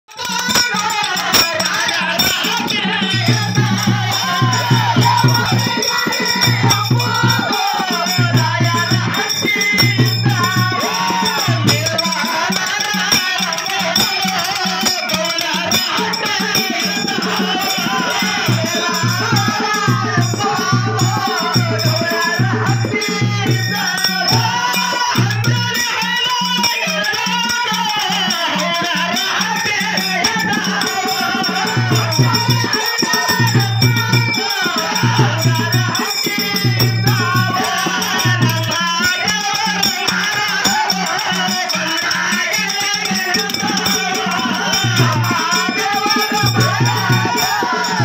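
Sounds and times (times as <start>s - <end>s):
rattling jingling percussion: 0.1s - 48.0s.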